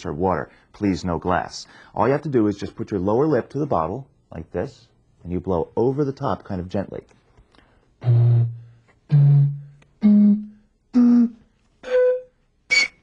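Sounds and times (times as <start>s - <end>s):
bottle panpipes hooting: 8.0s - 13.0s.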